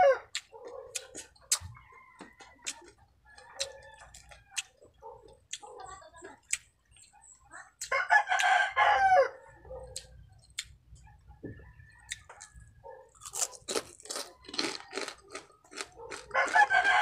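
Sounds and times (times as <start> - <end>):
rooster crowing: 0.0 - 0.3, 1.7 - 4.7, 8.0 - 9.8, 11.4 - 13.0, 16.3 - 17.0
crunching and chewing food: 0.0 - 17.0.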